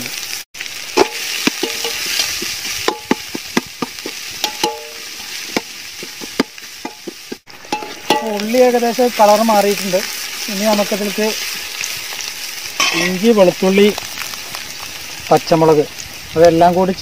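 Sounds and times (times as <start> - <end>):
onions sizzling in hot fat: 0.0 - 17.0
steel ladle scraping a metal pot: 1.0 - 3.3, 7.7 - 8.3.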